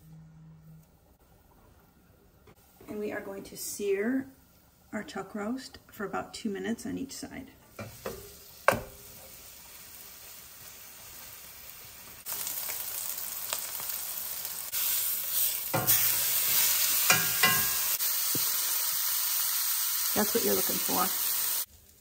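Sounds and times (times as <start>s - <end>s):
meat sizzling in oil: 7.8s - 22.0s
metal tongs clanking on pan: 15.7s - 18.0s.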